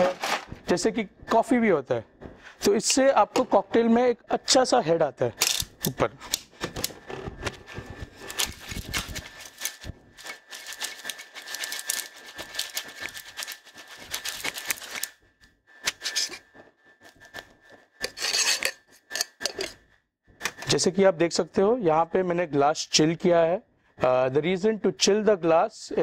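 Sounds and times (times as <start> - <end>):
metal cocktail shaker rattling: 8.5 - 15.0.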